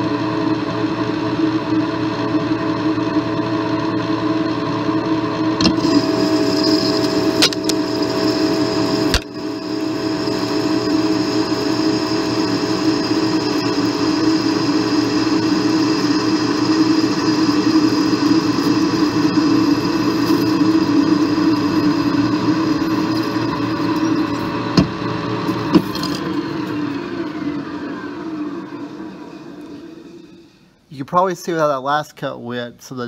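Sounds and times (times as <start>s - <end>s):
high cutting whine: 5.2s - 30.9s
metal lathe cutting aluminium: 5.6s - 30.7s.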